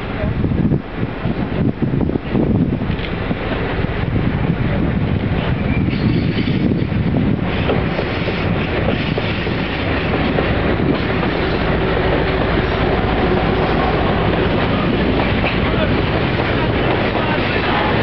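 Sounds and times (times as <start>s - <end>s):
diesel locomotive engine passing: 0.0s - 18.0s
train wheels clacking over rails: 5.2s - 18.0s.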